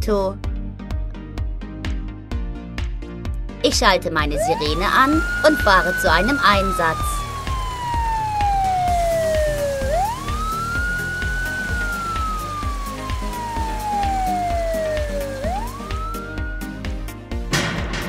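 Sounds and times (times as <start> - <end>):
background music with steady beat: 0.0 - 18.0
police siren wailing: 4.4 - 17.0.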